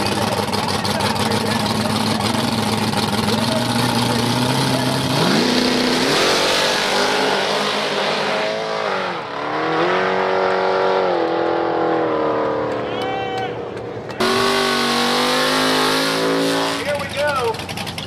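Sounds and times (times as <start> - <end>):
drag car engine accelerating: 0.0 - 18.0.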